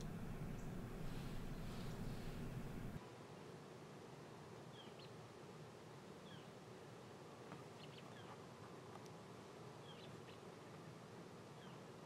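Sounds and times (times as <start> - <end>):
bird chirping faintly: 0.0 - 3.0.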